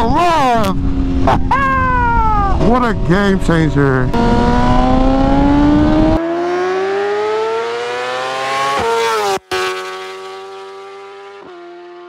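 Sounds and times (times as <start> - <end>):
motorcycle engine revving: 4.0 - 12.0.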